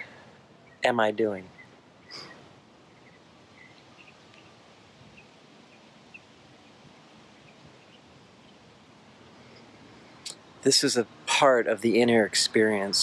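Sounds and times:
faint bird chirps: 0.0s - 10.5s.

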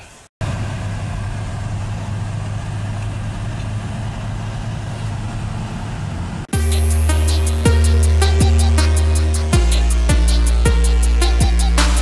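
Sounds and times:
car engine hum: 0.4s - 6.5s.

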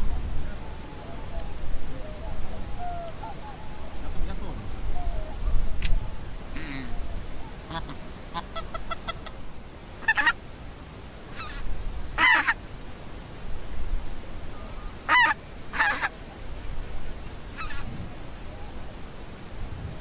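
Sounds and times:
geese honking: 6.2s - 9.4s, 10.0s - 10.4s, 12.2s - 12.6s, 14.6s - 16.1s.

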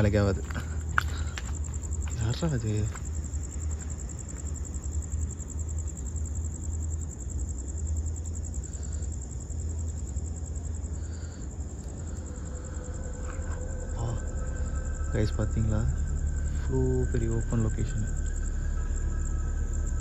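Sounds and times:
crickets trilling: 0.0s - 20.0s
low rumble: 11.5s - 20.0s.

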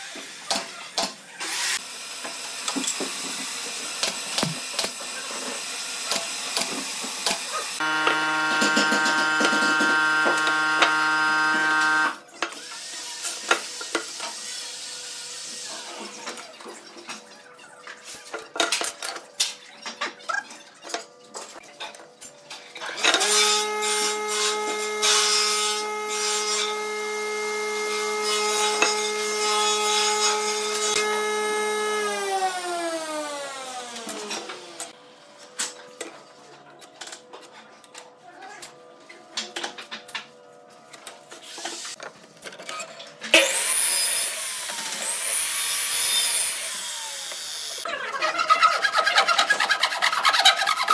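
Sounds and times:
power tool motor running: 5.6s - 12.2s, 43.4s - 47.8s
hand tool scraping wood: 48.2s - 50.9s.

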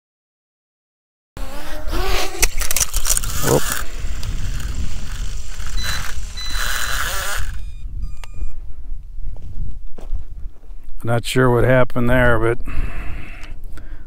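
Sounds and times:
handling noise rustling on microphone: 2.4s - 11.0s
microphone rumble: 3.2s - 11.0s.

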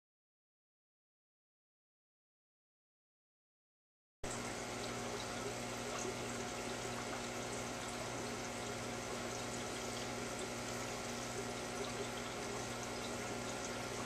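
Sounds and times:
aquarium water bubbling: 4.3s - 14.0s
low steady hum: 4.3s - 14.0s.

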